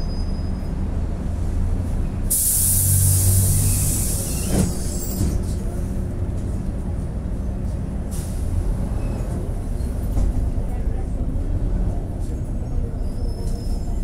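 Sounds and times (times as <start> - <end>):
vehicle rumble from on board: 0.0 - 14.0
loud hiss: 2.3 - 4.6.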